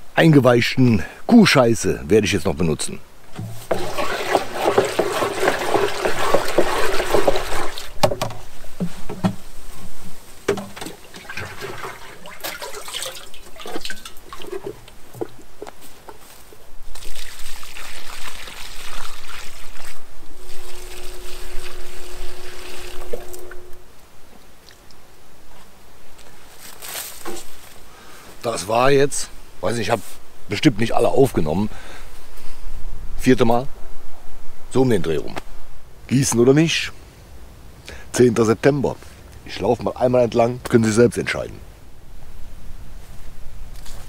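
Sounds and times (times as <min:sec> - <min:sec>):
liquid sloshing in plastic barrel: 0:03.3 - 0:09.5, 0:10.4 - 0:15.4
water pouring onto soil: 0:03.6 - 0:08.0, 0:10.8 - 0:14.8, 0:16.9 - 0:23.5.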